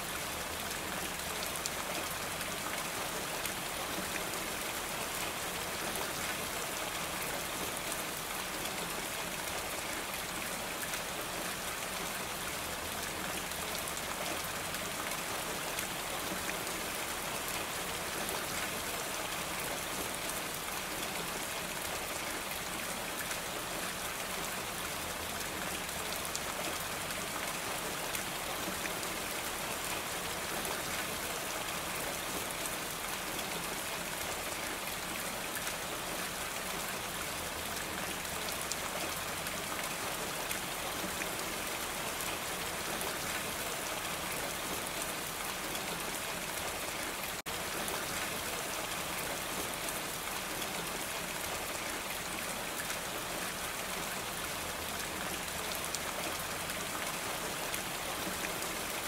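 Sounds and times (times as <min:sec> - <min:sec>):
rain on a roof: 0:00.0 - 0:59.0.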